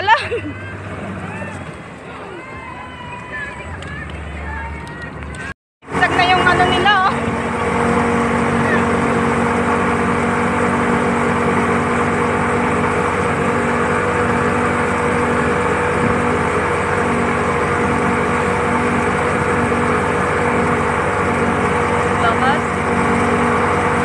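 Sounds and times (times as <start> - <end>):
outboard motor droning: 0.0 - 24.0
water churning in wake: 5.8 - 24.0.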